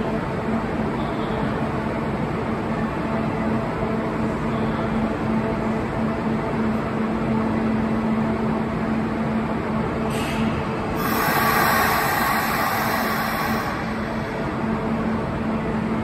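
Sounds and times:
electric train equipment humming: 0:10.6 - 0:16.0.

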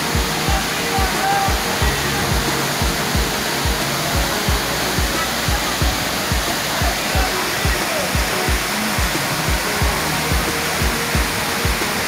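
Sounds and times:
waterfall rushing: 0:00.0 - 0:12.0
music with thumping beat: 0:00.1 - 0:12.0.

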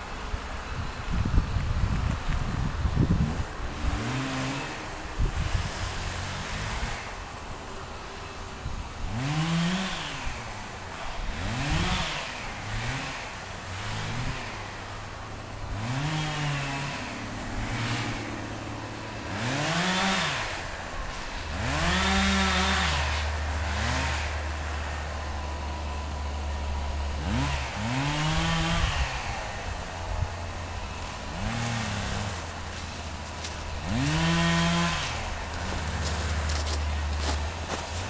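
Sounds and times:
chainsaw idling and revving: 0:00.0 - 0:38.0.

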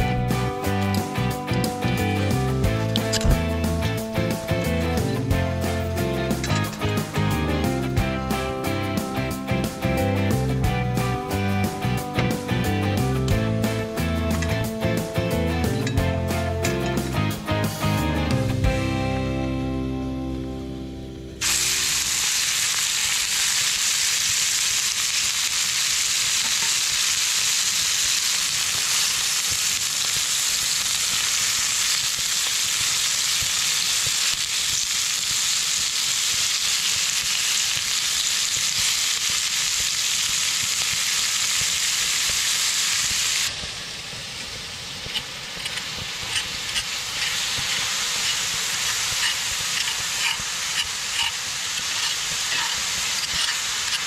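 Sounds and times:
turner clicking on skillet: 0:21.4 - 0:43.6, 0:44.4 - 0:54.0
meat sizzling in oil: 0:21.4 - 0:54.0.

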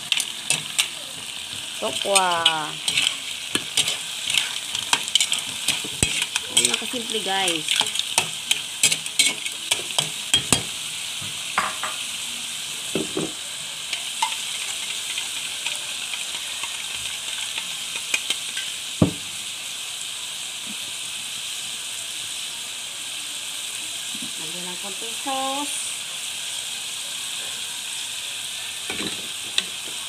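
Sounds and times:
spatula scraping wok: 0:00.0 - 0:10.8
food sizzling in oil: 0:00.0 - 0:30.0.

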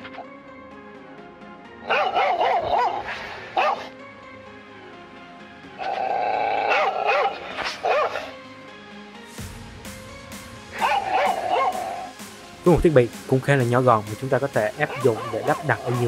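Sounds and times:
recorded dog barks from small speaker: 0:01.8 - 0:03.9, 0:06.7 - 0:08.3, 0:10.8 - 0:12.1, 0:14.8 - 0:16.0.

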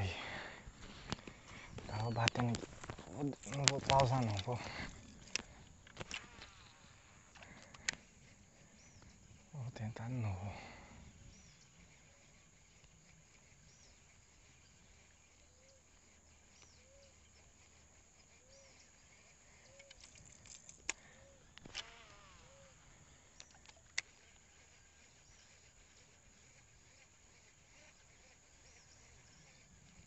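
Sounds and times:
sharp clicks: 0:01.0 - 0:08.1, 0:19.7 - 0:22.8
low arched bird call: 0:06.3 - 0:20.0, 0:21.0 - 0:30.0
higher bird chirps: 0:08.0 - 0:20.0, 0:21.0 - 0:30.0
brief falling whir: 0:21.6 - 0:22.8.

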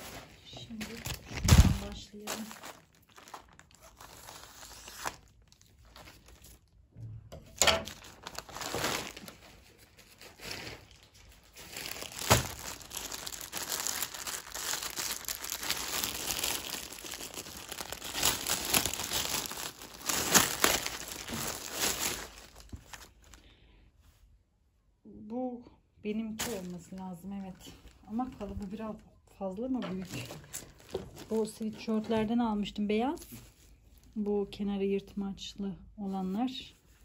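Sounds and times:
plastic mailer bag tearing: 0:00.0 - 0:06.6, 0:07.9 - 0:23.3
plastic wrapper crinkling: 0:00.0 - 0:06.8, 0:07.8 - 0:23.5, 0:26.3 - 0:29.1, 0:29.7 - 0:34.6.

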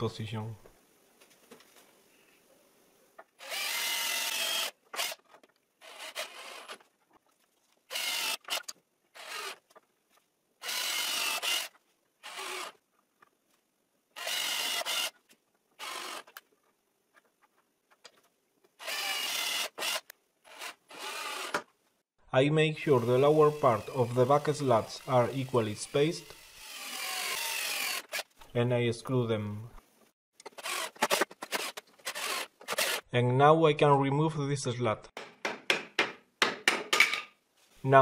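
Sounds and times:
cordless drill driving screws into wood: 0:03.4 - 0:06.9, 0:07.9 - 0:09.7, 0:10.6 - 0:12.8, 0:14.2 - 0:15.2, 0:15.8 - 0:16.4, 0:18.8 - 0:21.7, 0:23.0 - 0:28.4, 0:30.4 - 0:33.1.

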